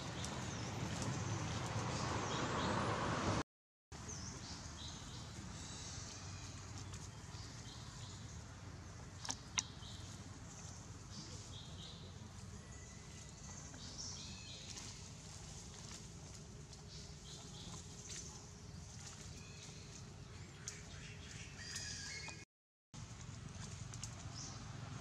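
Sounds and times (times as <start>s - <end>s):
monkey rustling in dry leaves: 12.3s - 20.4s.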